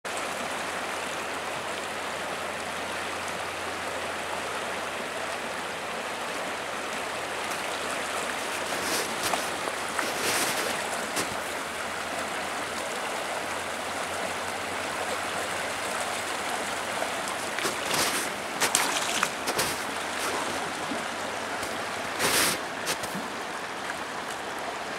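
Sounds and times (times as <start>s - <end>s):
river current rushing: 0.1s - 24.9s
water splashes: 0.1s - 24.9s.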